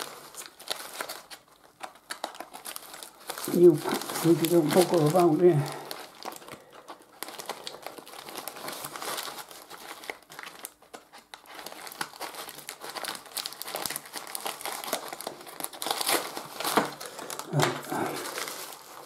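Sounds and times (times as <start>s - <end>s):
paper crinkling and rustling: 0.0s - 19.0s.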